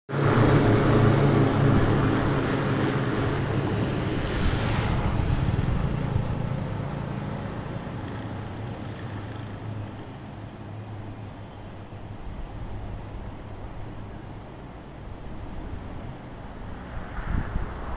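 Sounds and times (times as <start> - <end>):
rushing noise: 0.1 - 11.0, 11.8 - 17.9
vehicle engine humming: 0.1 - 17.9.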